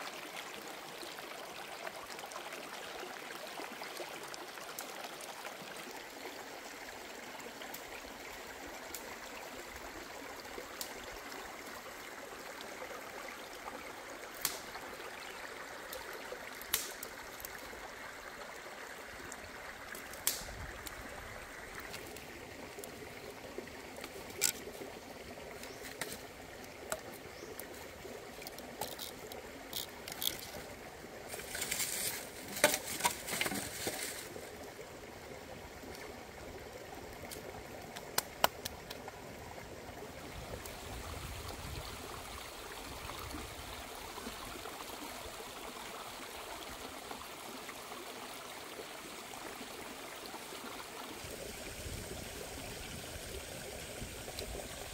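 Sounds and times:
stream running over rocks: 0.0 - 54.9
small clicks and knocks: 28.4 - 30.6
crackling and rustling: 31.3 - 34.4.

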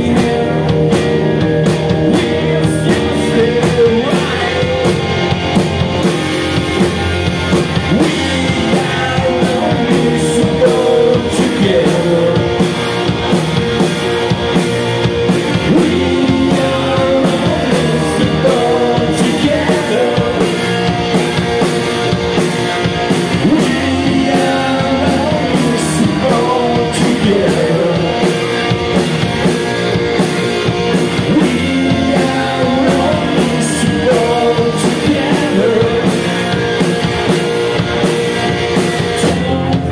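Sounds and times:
man singing into microphone: 0.0 - 1.0, 2.0 - 5.1, 7.8 - 12.7, 15.6 - 20.6, 23.3 - 28.4, 31.2 - 36.6, 39.1 - 39.9
drum kit beat: 0.0 - 39.9
electric bass: 0.0 - 39.9
electric guitars: 0.0 - 39.9.

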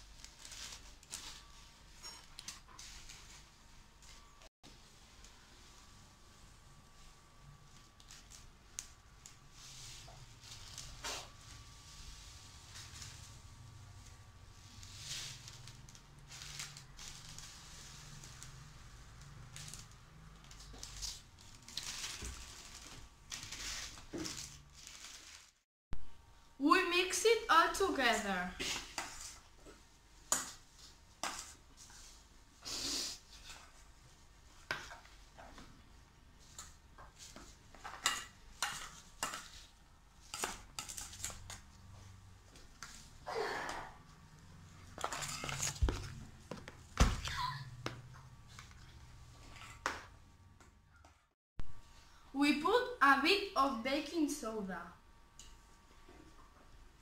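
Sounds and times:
plastic bag crinkling: 19.4 - 25.6
spoons clinking and scraping bowl: 37.8 - 41.6.

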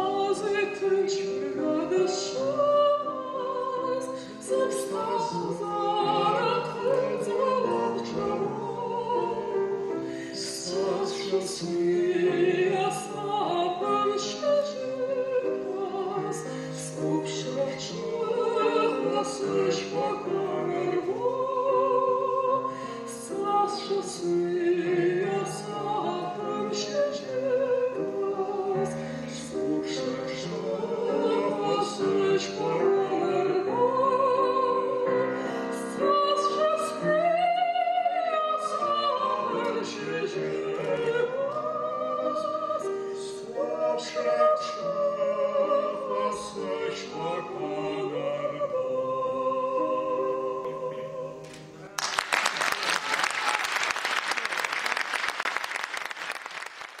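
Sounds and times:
piano: 0.0 - 57.0
applause: 51.9 - 57.0.

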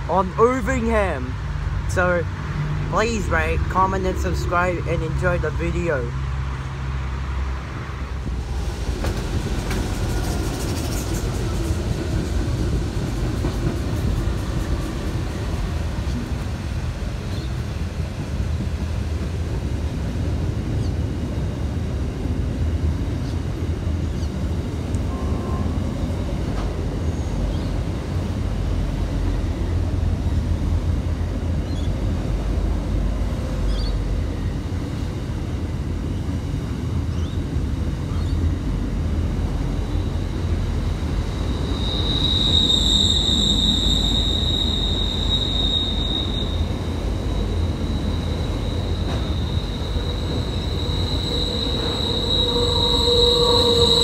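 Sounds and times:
train wagons rumbling on rails: 0.0 - 54.0
high steady squeal: 39.6 - 54.0.

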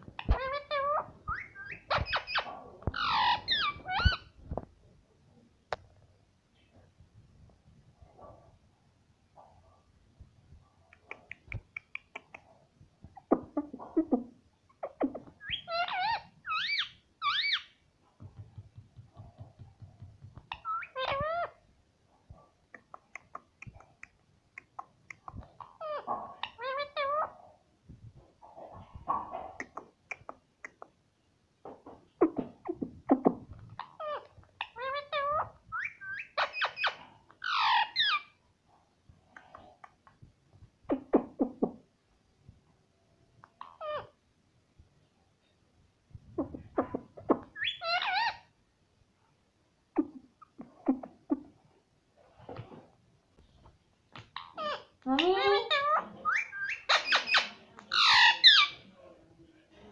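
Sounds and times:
parakeet chirping and whistling: 0.2 - 4.3, 15.4 - 17.7, 35.7 - 38.2, 47.6 - 48.4, 56.3 - 57.4
beak tapping on mirror: 18.2 - 20.6.

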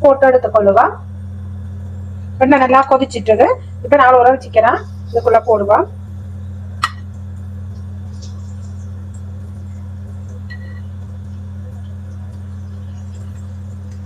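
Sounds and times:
steady low hum: 0.0 - 14.0
oil bubbling while deep-frying: 4.8 - 14.0
faint crackles: 6.0 - 14.0.

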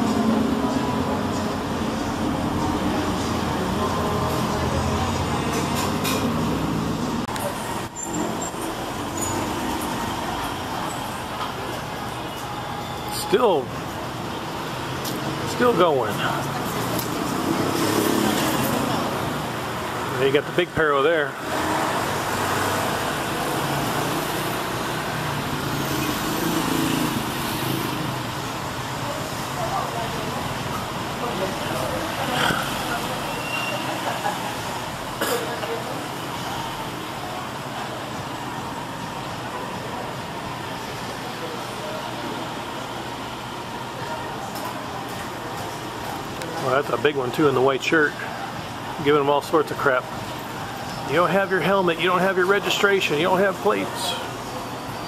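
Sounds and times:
heavy vehicle engine running: 0.0 - 13.1
cars and trucks passing: 0.0 - 55.0.

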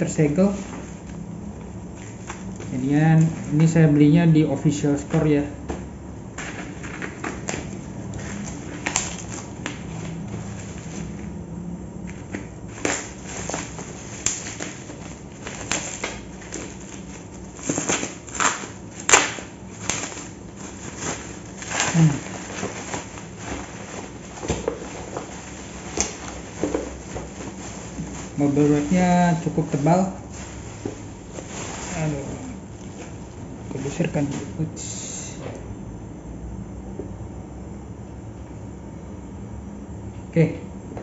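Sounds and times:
bubble wrap crinkling: 0.0 - 1.2, 6.4 - 11.4, 12.1 - 34.6
scissors snipping plastic: 15.4 - 20.3.

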